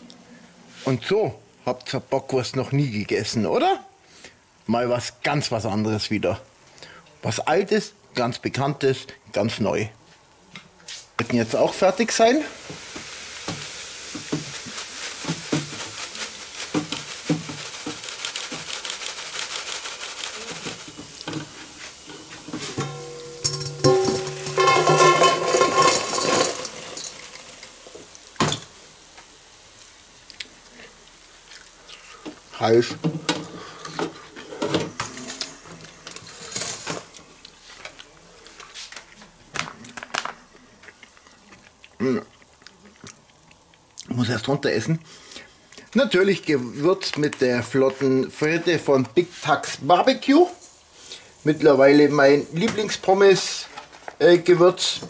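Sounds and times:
oil sizzling in deep fryer: 11.0 - 39.6, 44.0 - 55.0
rustle: 12.6 - 32.6
metal basket knocking: 22.6 - 26.8.

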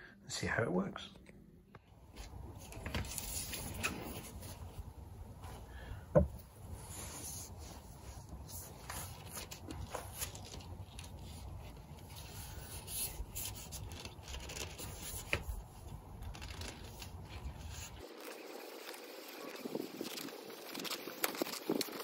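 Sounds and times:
mast sections sliding and rubbing: 6.4 - 22.0.

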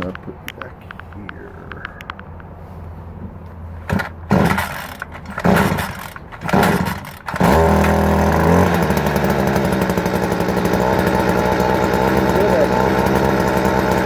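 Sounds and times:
small engine starting and running: 3.8 - 14.0.

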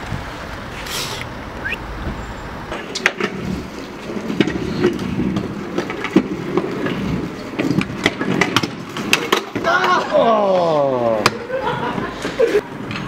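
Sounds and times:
scooter wheels rumbling on pavement: 0.0 - 13.0
scooter decks clicking and knocking: 2.7 - 13.0.

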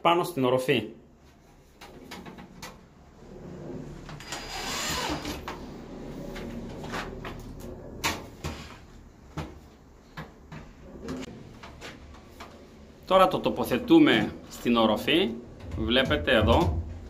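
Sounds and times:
metal channels clattering: 13.6 - 17.0.

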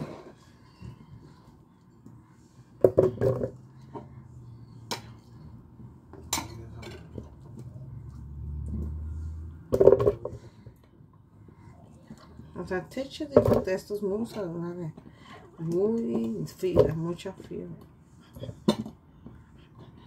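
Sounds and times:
dishes and utensils clattering: 6.2 - 7.5.

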